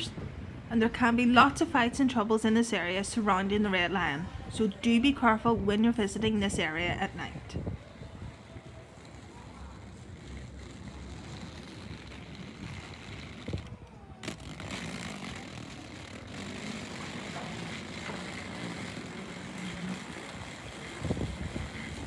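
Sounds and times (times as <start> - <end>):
car traffic hum: 7.0 - 22.0.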